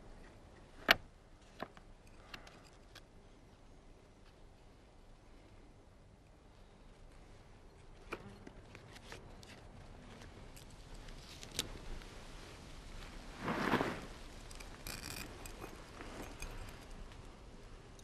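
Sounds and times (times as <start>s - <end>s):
cloth rustling: 11.2s - 14.4s.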